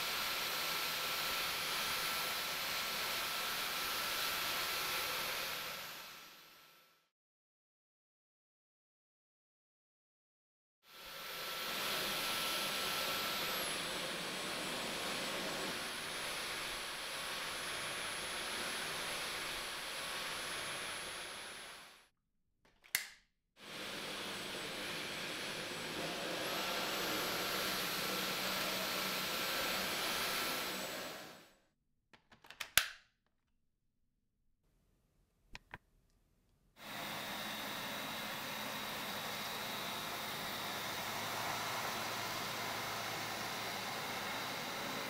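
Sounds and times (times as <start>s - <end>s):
cordless vacuum running: 0.0s - 6.9s, 10.9s - 22.1s, 23.6s - 31.6s, 36.8s - 45.0s
short sharp clicks: 22.7s - 23.2s.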